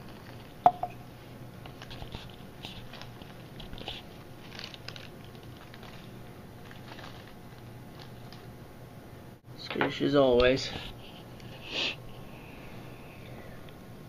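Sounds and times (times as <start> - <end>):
low steady hum: 0.0 - 14.0
faint crackles and rustles: 1.6 - 8.5.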